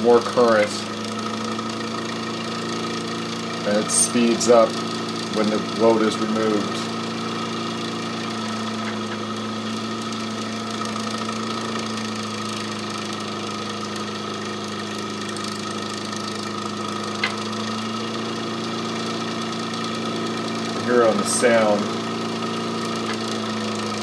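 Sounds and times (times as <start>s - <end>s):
electric motor humming: 0.0s - 24.0s
sharp click: 17.2s - 17.5s.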